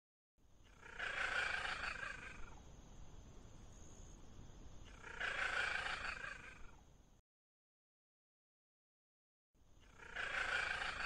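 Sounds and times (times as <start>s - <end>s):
cat calling: 0.7s - 2.5s, 4.9s - 6.7s, 9.8s - 11.0s.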